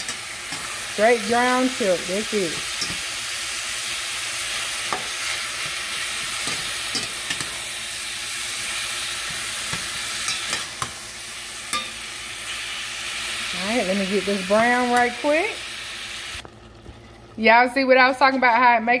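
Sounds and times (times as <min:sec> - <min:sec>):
meat sizzling in a pan: 0:00.0 - 0:16.5.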